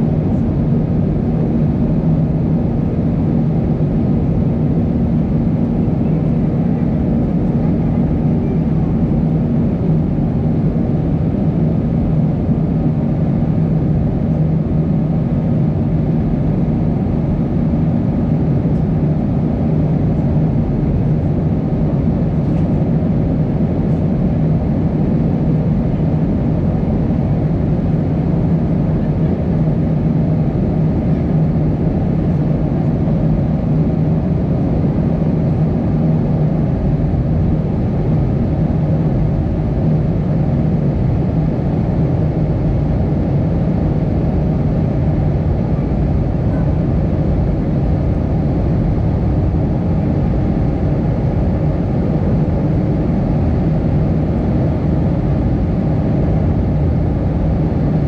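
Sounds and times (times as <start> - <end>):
jet engines droning: 0.0 - 58.0.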